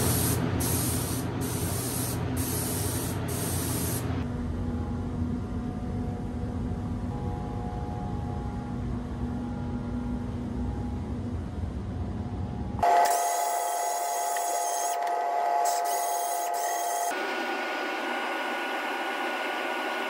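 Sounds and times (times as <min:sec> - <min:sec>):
steady whir: 0:12.6 - 0:20.0
orbital sander whining: 0:12.8 - 0:20.0.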